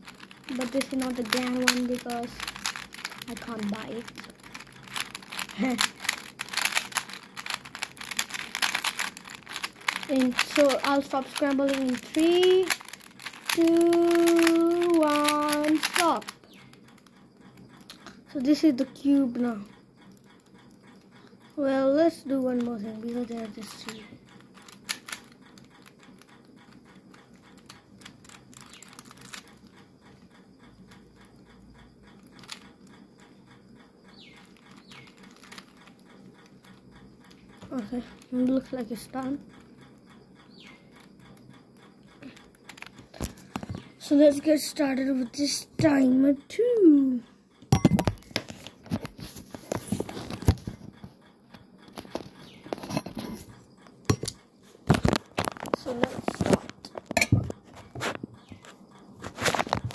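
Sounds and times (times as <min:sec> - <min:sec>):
puzzle cube clicking: 0:00.0 - 0:17.1, 0:22.5 - 0:29.8, 0:32.3 - 0:32.8, 0:34.1 - 0:39.4, 0:42.2 - 0:44.6.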